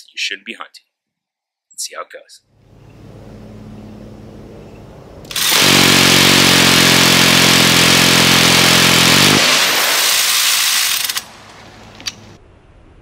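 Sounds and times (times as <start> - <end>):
low steady hum: 2.6 - 5.4
minigun firing: 5.3 - 11.5.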